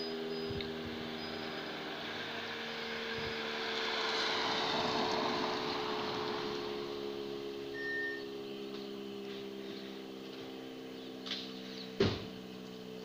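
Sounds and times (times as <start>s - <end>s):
engine idling: 6.6s - 13.0s
high chirp: 7.7s - 8.4s.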